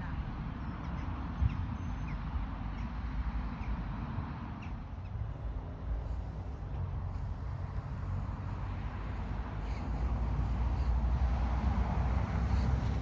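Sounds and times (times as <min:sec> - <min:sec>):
wind buffeting microphone: 0:04.7 - 0:13.0.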